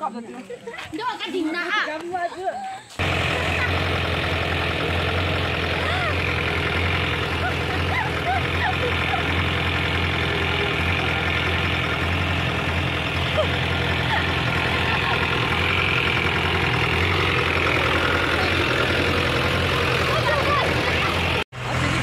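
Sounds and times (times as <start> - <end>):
jeep engine running low drone: 3.0 - 22.0.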